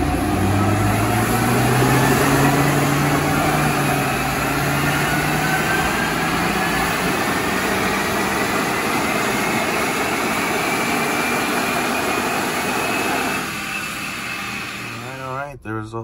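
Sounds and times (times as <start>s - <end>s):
rising whine: 0.0s - 15.5s
car engine running hard: 0.0s - 15.6s.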